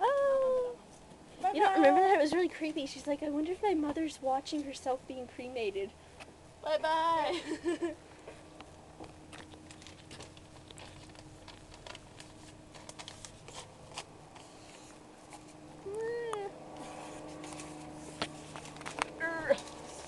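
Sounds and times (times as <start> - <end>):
paper burning crackling: 9.2 - 15.0, 17.2 - 20.0.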